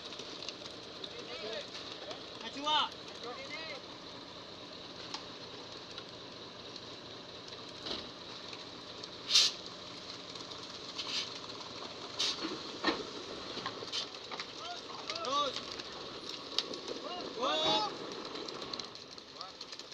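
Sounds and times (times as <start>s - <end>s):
concrete mixer truck running: 0.0s - 19.9s
sharp scraping noises: 9.2s - 9.6s, 10.9s - 11.4s, 12.2s - 12.6s.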